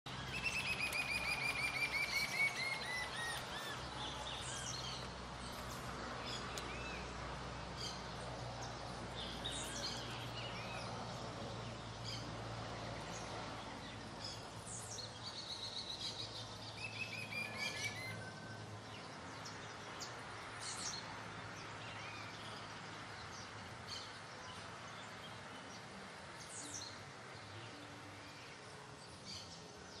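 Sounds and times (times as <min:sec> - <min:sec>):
birds chirping: 0:00.1 - 0:07.2.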